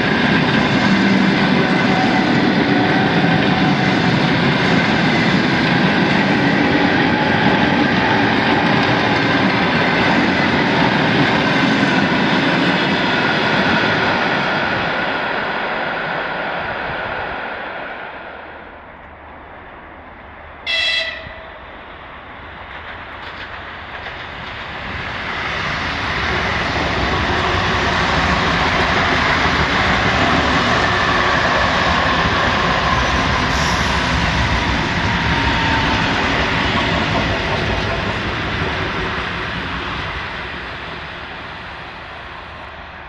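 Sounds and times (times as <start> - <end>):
train passing roar: 0.0 - 43.0
train horn blast: 20.6 - 21.6.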